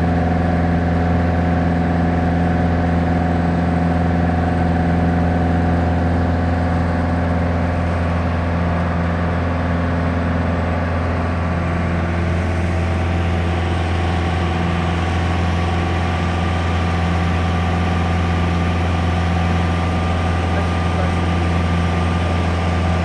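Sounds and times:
aircraft engine droning in cabin: 0.0 - 23.0.

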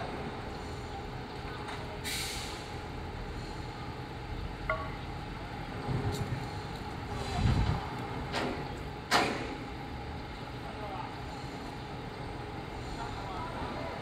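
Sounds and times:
truck engine rumbling: 0.0 - 14.0
short air hiss: 2.0 - 2.7.

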